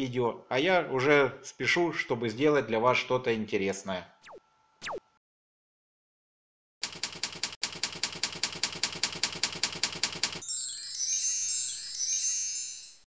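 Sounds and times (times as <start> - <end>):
rapid typing clicks: 6.8 - 10.4
bright shimmering chime: 10.4 - 13.0.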